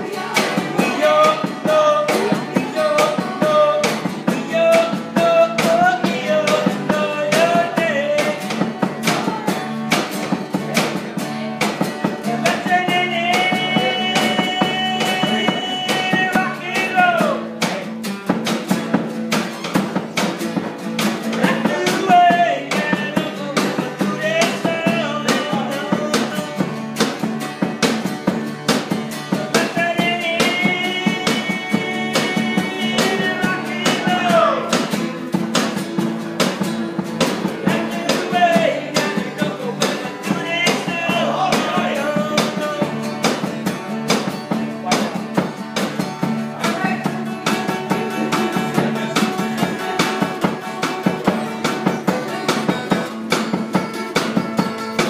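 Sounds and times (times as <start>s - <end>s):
person singing: 0.0s - 17.8s, 21.3s - 26.8s, 29.2s - 34.9s, 37.2s - 43.1s
electric guitar: 0.0s - 55.0s
rock and roll music: 0.0s - 55.0s
steady drum beat: 0.0s - 55.0s.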